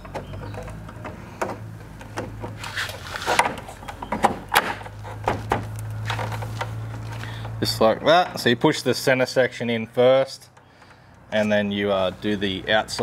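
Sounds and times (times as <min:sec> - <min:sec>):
clicks and knocks of plastic parts: 0:00.0 - 0:07.6.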